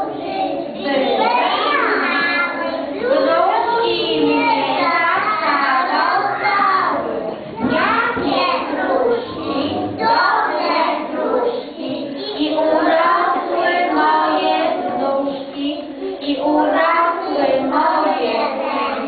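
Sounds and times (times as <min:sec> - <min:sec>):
children singing: 0:00.0 - 0:19.0
woman singing along: 0:09.0 - 0:18.8.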